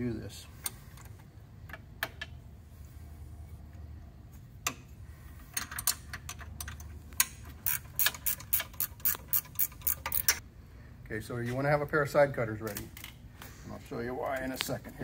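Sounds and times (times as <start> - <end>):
ratcheting wrench clicking: 5.6 - 10.4.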